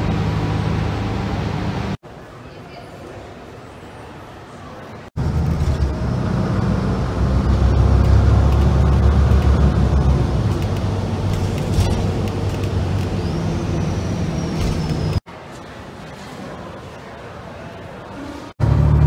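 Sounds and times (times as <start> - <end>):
vehicle engine and road rumble: 0.0 - 2.0, 5.2 - 15.3, 18.6 - 19.0.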